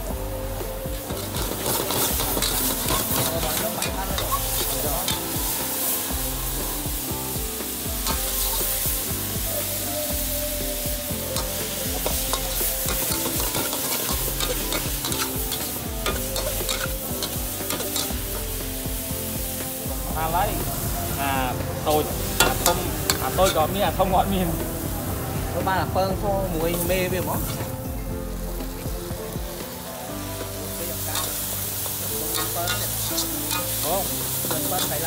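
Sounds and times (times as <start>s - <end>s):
food sizzling: 0.0s - 35.0s
metal spatula scraping wok: 1.2s - 6.6s, 11.4s - 18.7s, 22.3s - 23.8s, 31.1s - 35.0s.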